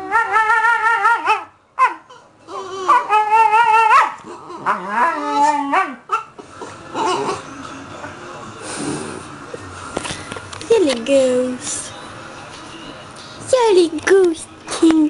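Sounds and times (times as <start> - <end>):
husky howl-like whines: 0.0 - 6.1.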